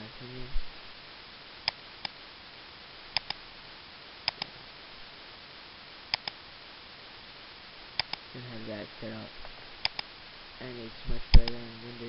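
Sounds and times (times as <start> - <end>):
faint hiss: 0.0 - 12.0
computer mouse clicking: 3.1 - 3.4, 4.2 - 4.5, 6.1 - 6.4, 8.0 - 8.2, 9.8 - 10.1.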